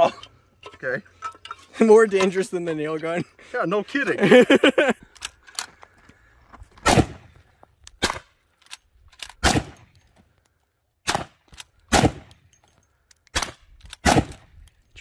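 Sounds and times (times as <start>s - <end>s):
rifle shots: 6.8s - 7.3s, 9.4s - 9.9s, 11.0s - 12.3s, 13.3s - 14.5s.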